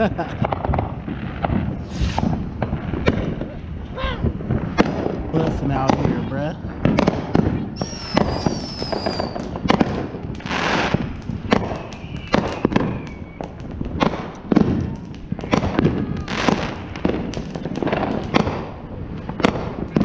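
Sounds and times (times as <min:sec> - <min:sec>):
firework hissing bursts: 0:00.0 - 0:14.7
fireworks bangs and pops: 0:00.0 - 0:20.0
firework falling whistle: 0:01.8 - 0:02.4, 0:07.7 - 0:09.7, 0:10.6 - 0:18.4.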